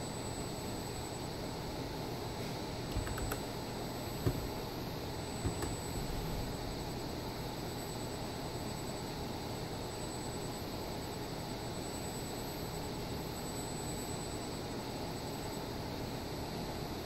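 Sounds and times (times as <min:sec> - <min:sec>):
machinery whir and hiss: 0:02.1 - 0:08.0.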